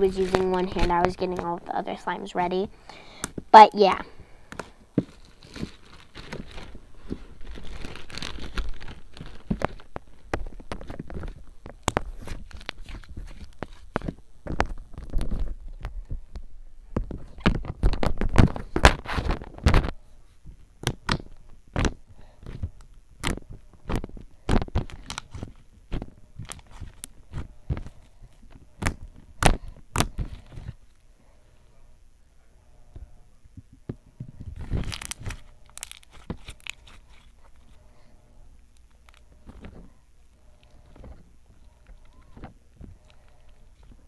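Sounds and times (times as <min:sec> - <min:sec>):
slime clicking and crackling: 0:07.4 - 0:15.4, 0:34.6 - 0:37.3.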